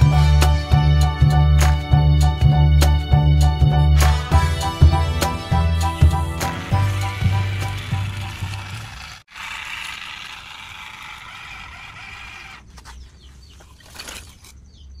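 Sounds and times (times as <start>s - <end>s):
background music: 0.0s - 8.9s
toy truck motor whirring: 6.4s - 12.8s.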